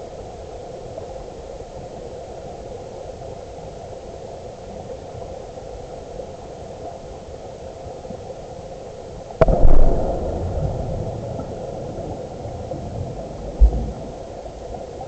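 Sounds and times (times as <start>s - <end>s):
muffled underwater water noise: 0.0s - 15.0s
low rumbling surge: 9.4s - 14.2s.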